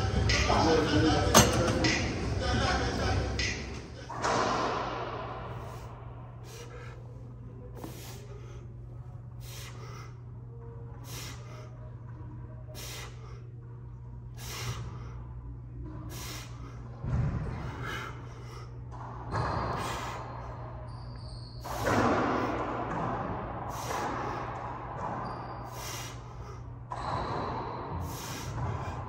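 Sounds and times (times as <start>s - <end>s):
steady low hum: 0.0s - 29.0s
man breathing hard: 5.5s - 10.4s, 14.3s - 15.4s, 16.0s - 18.9s, 25.6s - 26.8s, 27.9s - 29.0s.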